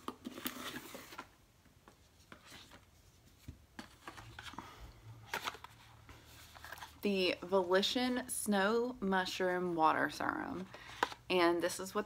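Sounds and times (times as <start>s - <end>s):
packaging rustling and clicking: 5.2s - 5.9s.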